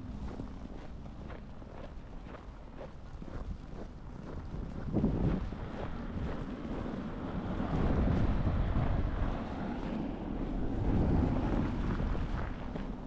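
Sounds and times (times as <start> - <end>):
wind gusting against microphone: 3.3 - 13.0.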